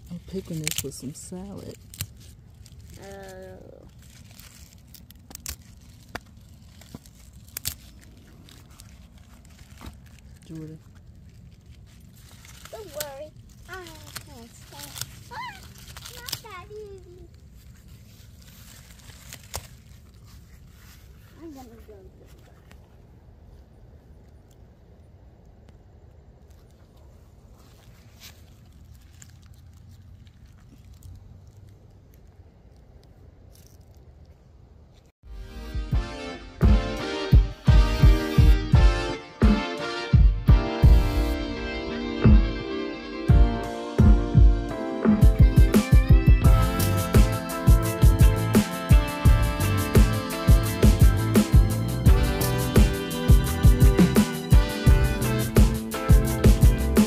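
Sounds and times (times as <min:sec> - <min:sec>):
lettuce leaves snapping: 0:00.0 - 0:21.3, 0:24.2 - 0:35.1, 0:45.8 - 0:54.4
leaves rustling: 0:00.0 - 0:35.1, 0:45.4 - 0:57.0
low steady rumble: 0:00.0 - 0:57.0.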